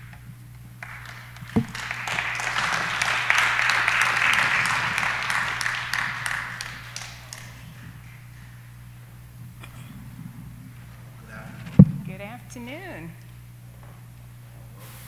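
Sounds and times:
low electrical hum: 0:00.0 - 0:15.0
audience applauding: 0:00.8 - 0:08.7.

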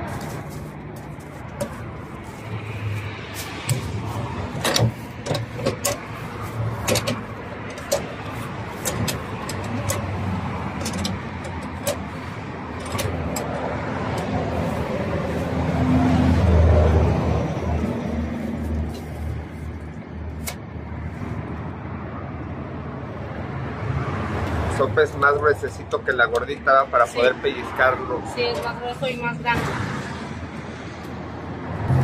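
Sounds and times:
vehicle engine humming: 0:00.0 - 0:32.0
metal press clicking and knocking: 0:04.6 - 0:06.1, 0:06.8 - 0:08.2.

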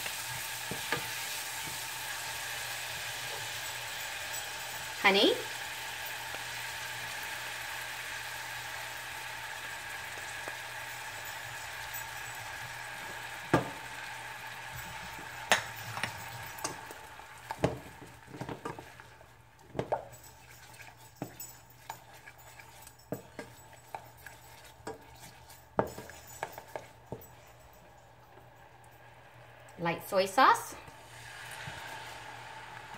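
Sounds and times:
sauce sizzling in a saucepan: 0:00.0 - 0:32.9
wooden spatula scraping a pan: 0:19.8 - 0:27.4.

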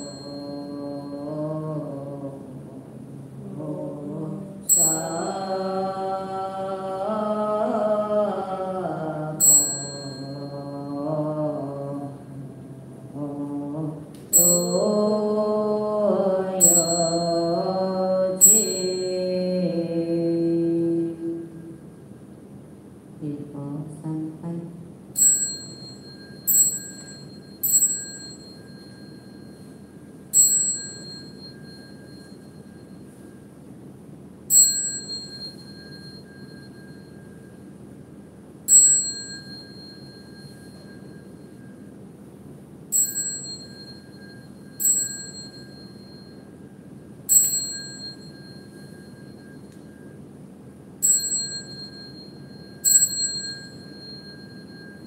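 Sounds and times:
small hand bell ringing: 0:00.0 - 0:01.3, 0:04.7 - 0:05.8, 0:09.4 - 0:11.0, 0:14.3 - 0:15.4, 0:16.6 - 0:19.2, 0:25.2 - 0:33.5, 0:34.5 - 0:37.7, 0:38.7 - 0:41.9, 0:42.9 - 0:46.7, 0:47.3 - 0:50.2, 0:51.0 - 0:55.0
faint steady hum: 0:00.0 - 0:55.0.

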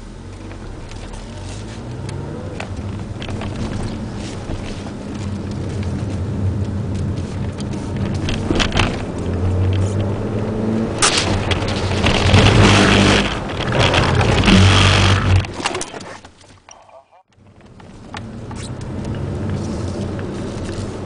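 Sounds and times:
car engine running: 0:00.0 - 0:15.5.

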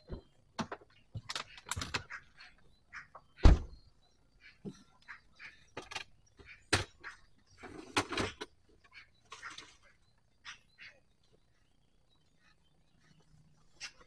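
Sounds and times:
handling knocks and clicks: 0:00.0 - 0:02.1.

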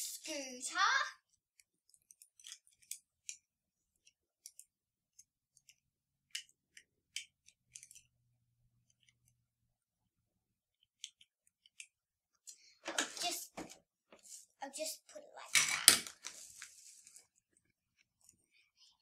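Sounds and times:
plastic toy pieces clicking: 0:01.2 - 0:08.2, 0:10.7 - 0:12.0, 0:15.5 - 0:16.3.

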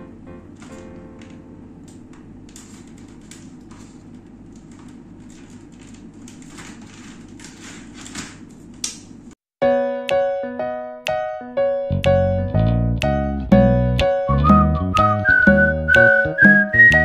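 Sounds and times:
keyboard music: 0:00.0 - 0:02.4, 0:09.6 - 0:17.0
low room hum: 0:00.0 - 0:09.4.

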